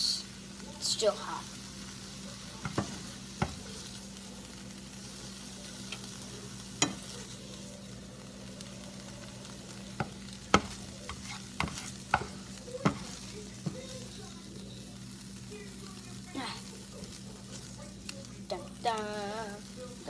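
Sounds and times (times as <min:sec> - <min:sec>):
spatula scraping a frying pan: 0:09.9 - 0:13.9.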